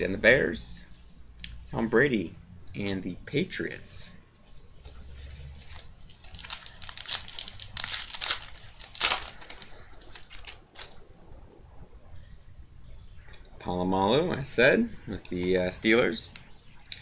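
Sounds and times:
plastic wrapper crinkling: 5.6 - 11.5.

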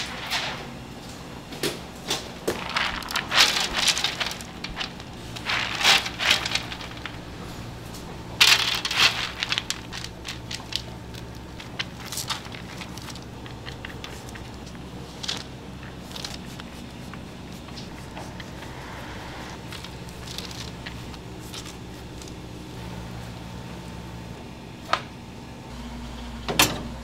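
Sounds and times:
low hum: 0.0 - 27.0
chopped nuts pattering onto metal tray: 1.6 - 18.6.

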